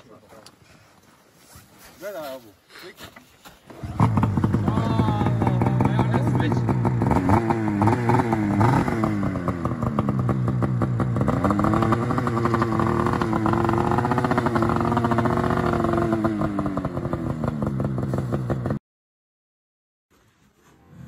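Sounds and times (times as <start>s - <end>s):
snowmobile engine revving: 3.8s - 18.7s.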